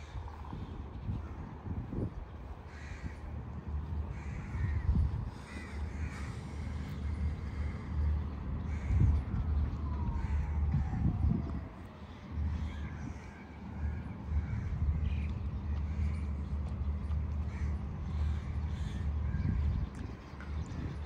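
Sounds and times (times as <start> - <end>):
low rumble: 0.0 - 21.0
crows cawing: 2.6 - 9.4, 10.1 - 10.8, 12.1 - 16.4, 17.4 - 19.7.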